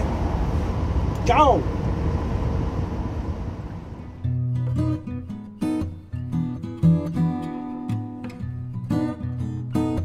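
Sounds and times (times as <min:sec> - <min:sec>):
strummed guitar music: 0:04.2 - 0:10.0.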